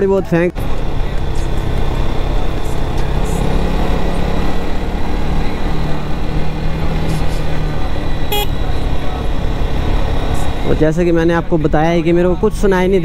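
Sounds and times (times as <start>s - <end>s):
motorcycle engine running: 0.6s - 10.9s
short high-pitched beep: 8.3s - 8.6s.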